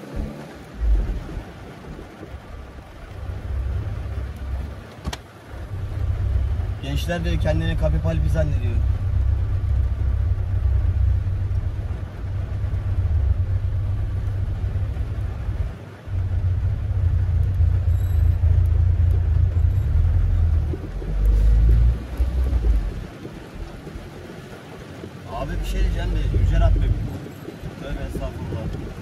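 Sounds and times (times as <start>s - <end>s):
car engine and road rumble: 0.0s - 29.0s.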